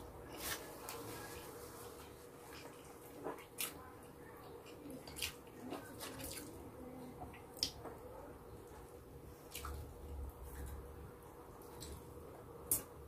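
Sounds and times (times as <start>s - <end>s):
wet chewing and mouth clicks: 4.6s - 6.6s, 9.4s - 10.9s.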